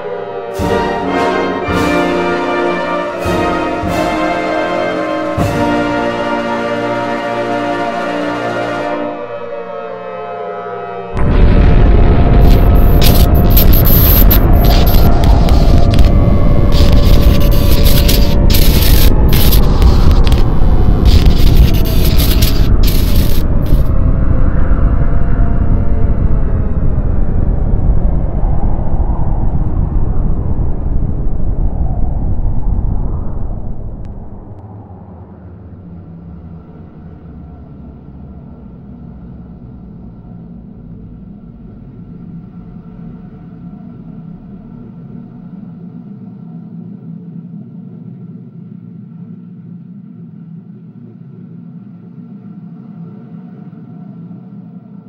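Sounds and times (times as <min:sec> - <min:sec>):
deep rumbling noise: 0:11.0 - 0:55.0.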